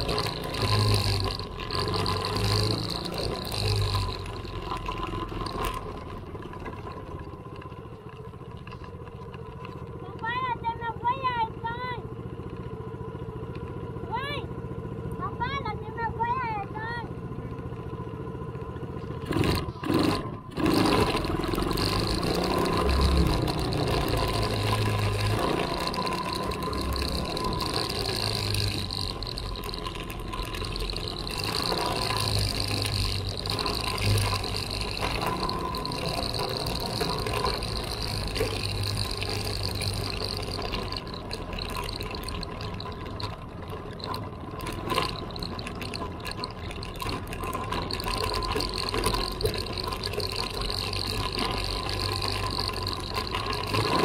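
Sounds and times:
small vehicle engine whine: 0.0s - 54.0s
tyres rumbling on gravel: 0.0s - 54.0s.

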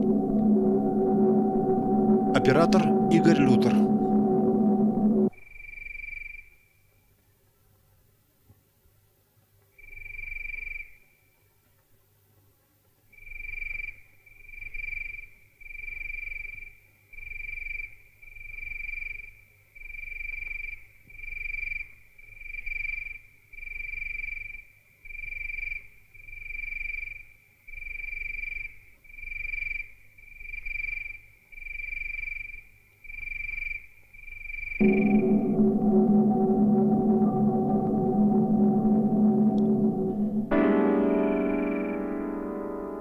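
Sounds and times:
low pulsing throb: 0.0s - 5.4s, 34.8s - 43.0s
pulsing high electronic tone: 0.0s - 5.4s, 34.8s - 43.0s.

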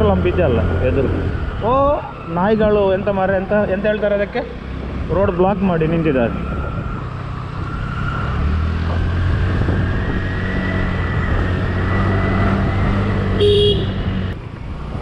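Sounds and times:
horn beep: 13.4s - 14.0s.

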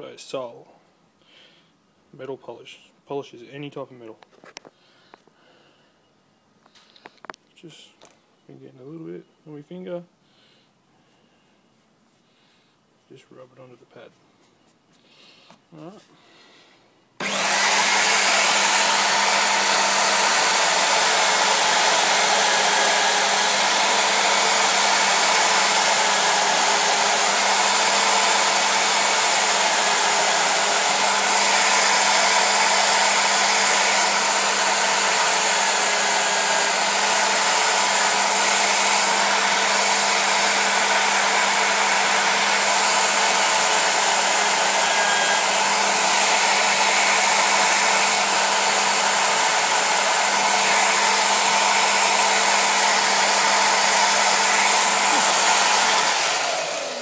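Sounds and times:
electric drill motor hum: 17.2s - 57.0s.

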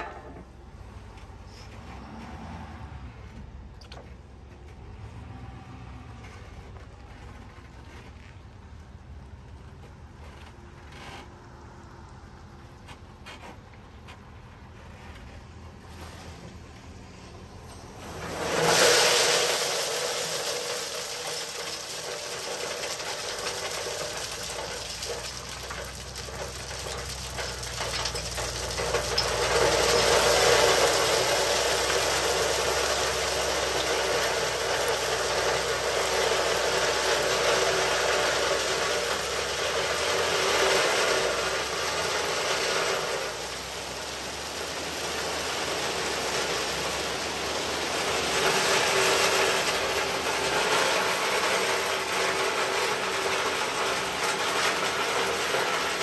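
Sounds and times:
rocks pouring from truck bed: 13.5s - 56.0s.

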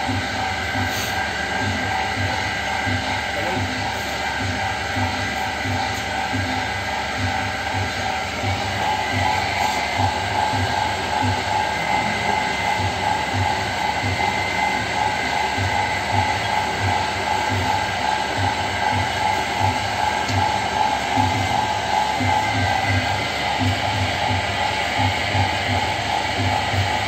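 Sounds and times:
potter's wheel humming: 0.0s - 27.0s.

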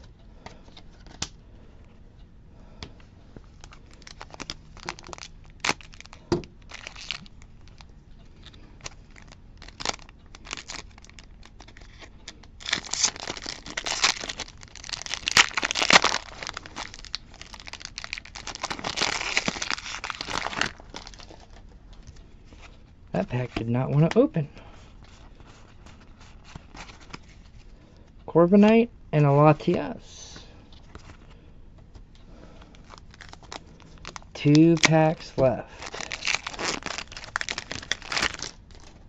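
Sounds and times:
foil wrapper crinkling and tearing: 3.6s - 21.6s, 32.7s - 39.0s.

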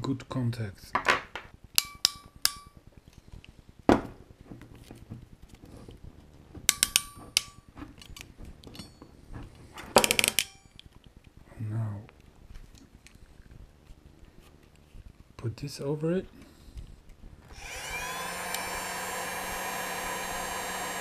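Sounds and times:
ratcheting crimping pliers clicks: 6.7s - 8.9s
metal hand tools clinking: 6.7s - 9.1s.

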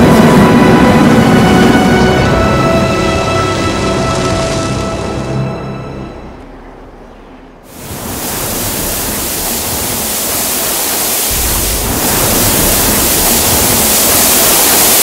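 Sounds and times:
hose water spraying on insulation: 7.7s - 15.0s.

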